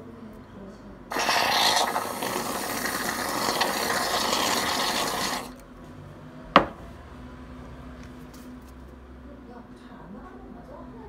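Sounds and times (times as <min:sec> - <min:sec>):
whipped cream dispenser sputtering: 0:01.1 - 0:05.6.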